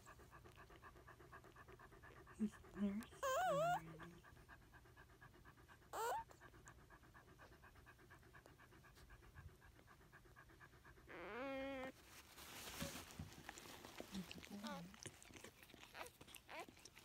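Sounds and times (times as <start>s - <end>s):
dog panting rapidly: 0.0s - 11.2s
dog squeaking: 3.2s - 3.8s, 6.0s - 6.2s, 11.1s - 11.9s.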